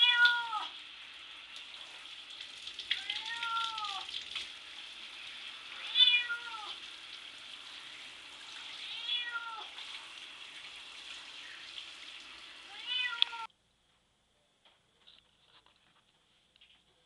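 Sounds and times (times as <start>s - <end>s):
cat meowing: 0.0s - 0.8s, 3.0s - 4.1s, 5.8s - 6.8s, 8.8s - 9.8s, 12.7s - 13.5s
running water hiss: 0.0s - 13.5s.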